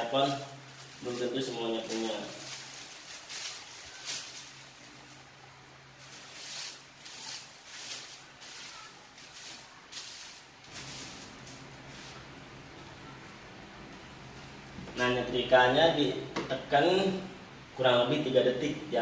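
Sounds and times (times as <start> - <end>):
paper rustling and crackling: 0.0 - 5.3, 5.9 - 12.4
faint low hum: 0.0 - 19.0.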